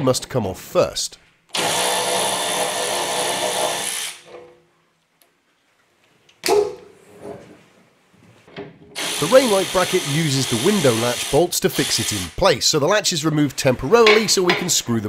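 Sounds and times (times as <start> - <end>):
power drill running: 1.5 - 4.4, 9.0 - 12.4.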